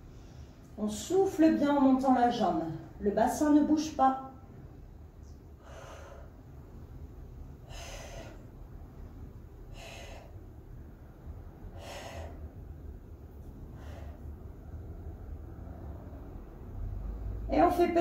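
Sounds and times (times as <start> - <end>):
low room hum: 0.0 - 18.0
woman breathing out hard: 5.6 - 6.4, 7.6 - 8.5, 9.7 - 10.4, 11.7 - 12.6.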